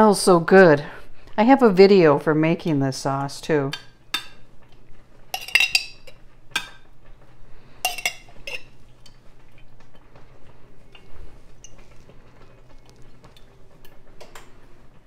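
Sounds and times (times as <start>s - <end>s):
metal spoon clinking on glass: 5.4s - 6.2s, 7.9s - 8.7s.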